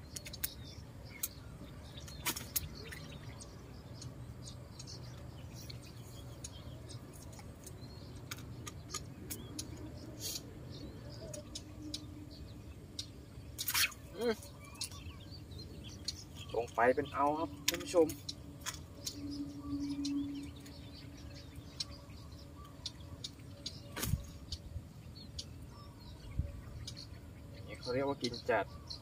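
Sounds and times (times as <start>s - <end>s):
sharp ticks: 4.7s - 10.5s, 17.5s - 20.8s
faint small bird chirps: 4.7s - 29.0s.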